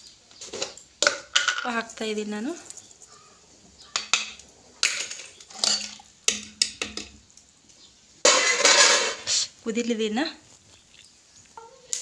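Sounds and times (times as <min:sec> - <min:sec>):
metal ladle clinking in pot: 0:04.0 - 0:07.1.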